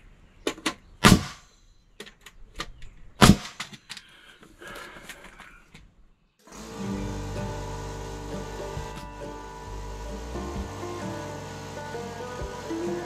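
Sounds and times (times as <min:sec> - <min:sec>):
nail gun firing: 0:01.0 - 0:01.4, 0:03.2 - 0:03.8
background music: 0:06.6 - 0:13.0.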